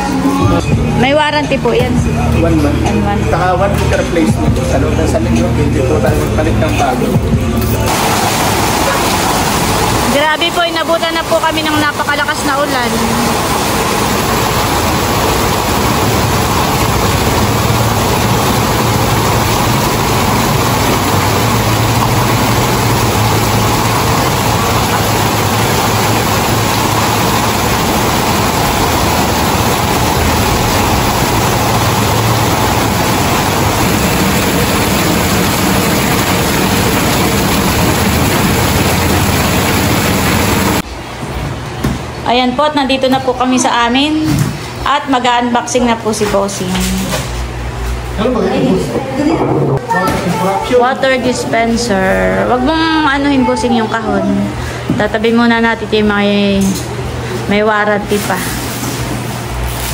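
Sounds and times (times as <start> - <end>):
heavy rain on metal roofs: 7.8 - 40.9, 58.0 - 59.9
rain splashing on wet street: 7.9 - 40.8.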